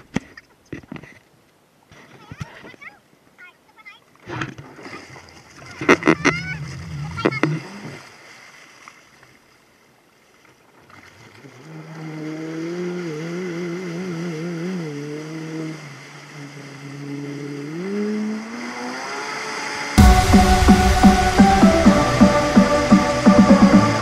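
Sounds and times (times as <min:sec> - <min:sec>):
water wash: 0:04.7 - 0:09.0, 0:11.1 - 0:24.0
motorboat engine droning: 0:05.6 - 0:07.8, 0:11.5 - 0:24.0.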